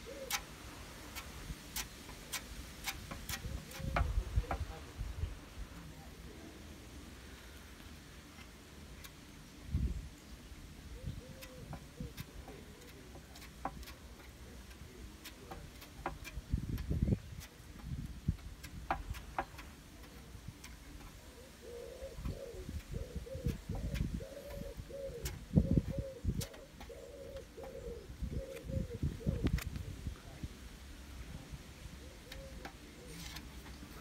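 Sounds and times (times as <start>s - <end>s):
dove cooing: 0.0s - 0.6s, 3.3s - 4.8s, 10.9s - 14.3s, 18.9s - 29.6s, 31.9s - 34.0s.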